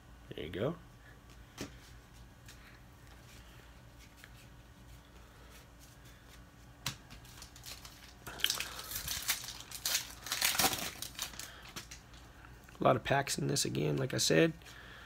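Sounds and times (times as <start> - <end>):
foil wrapper crinkling and tearing: 7.2 - 12.2.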